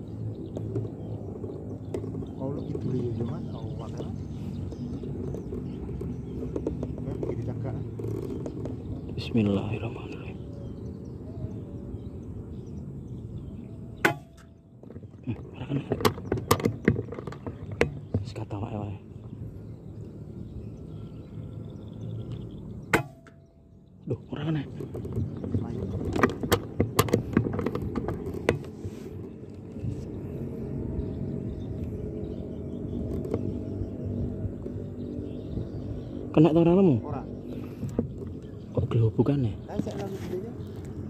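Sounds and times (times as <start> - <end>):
handling rumble: 0.0 - 41.0
irregular clicks and knocks: 14.0 - 18.5, 24.6 - 28.8.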